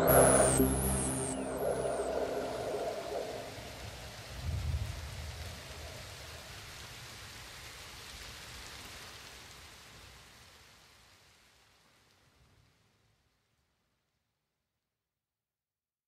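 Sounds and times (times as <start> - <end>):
hissing noise wash: 0.0 - 7.1.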